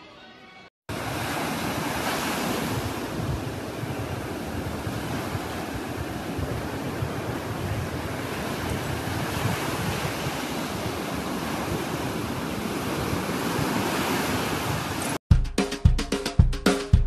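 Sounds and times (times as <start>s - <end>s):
ocean surf washing onto beach: 0.9s - 15.2s
music with steady beat: 15.3s - 17.0s.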